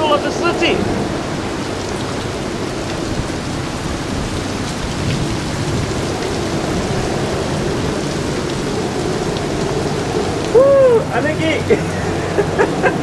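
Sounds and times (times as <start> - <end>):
heavy rain falling: 0.0 - 13.0
low rumble of thunder: 0.8 - 11.2.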